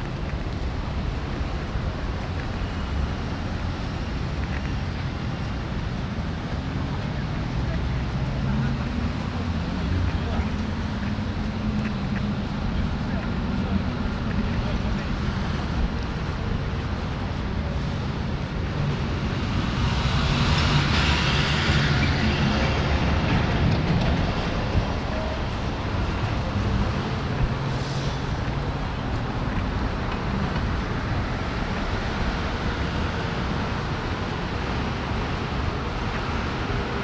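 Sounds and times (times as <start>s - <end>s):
cars rumbling past: 2.7s - 37.0s.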